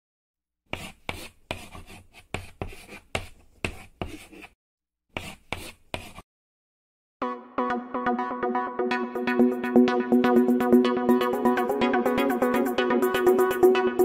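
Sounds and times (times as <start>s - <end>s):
pen strokes writing: 0.7s - 6.2s.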